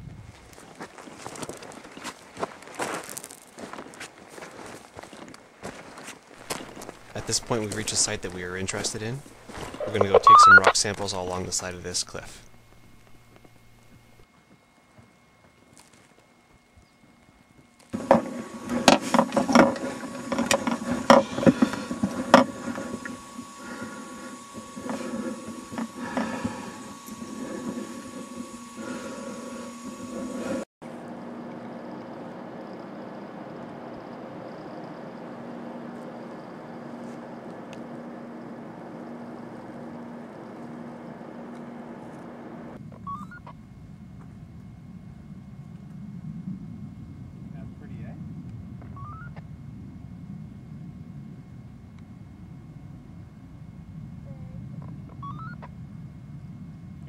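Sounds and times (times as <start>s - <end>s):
steady mechanical hum: 0.0s - 57.0s
knocks and clicks on rocky ground: 0.6s - 10.2s
short electronic beeps: 9.8s - 10.8s.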